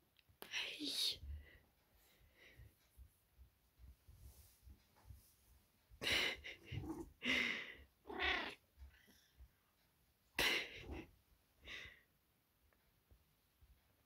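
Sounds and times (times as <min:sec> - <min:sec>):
cat meowing chirps: 0:08.1 - 0:08.6.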